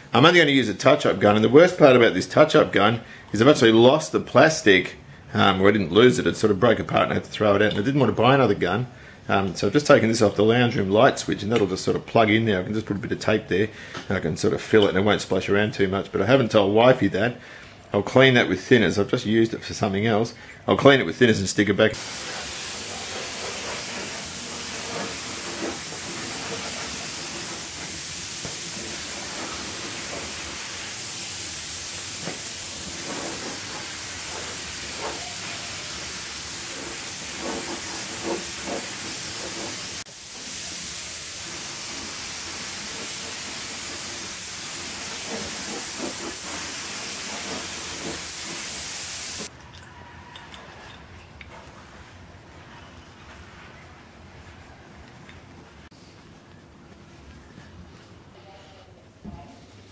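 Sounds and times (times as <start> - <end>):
spray gun hissing: 21.9 - 49.5.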